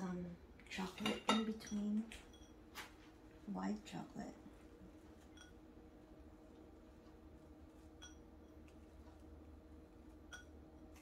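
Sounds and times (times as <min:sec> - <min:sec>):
faint room hum: 0:00.0 - 0:11.0.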